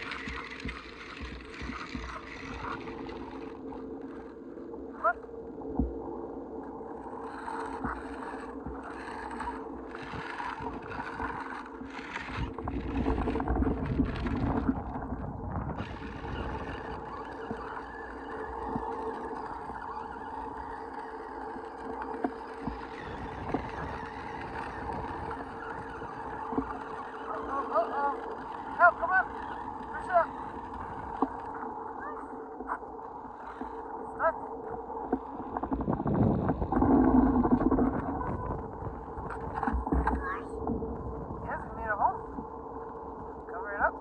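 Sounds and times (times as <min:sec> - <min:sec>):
wheels crunching over gravel: 0:00.0 - 0:04.0, 0:15.6 - 0:32.8
electric motor whine: 0:15.8 - 0:32.2.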